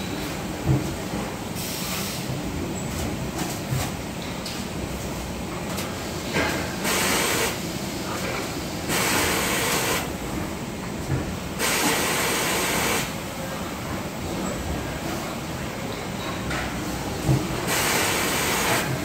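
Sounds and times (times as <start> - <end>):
compressed air hissing: 6.8 - 7.6, 8.9 - 10.1, 11.6 - 13.1, 17.7 - 18.9.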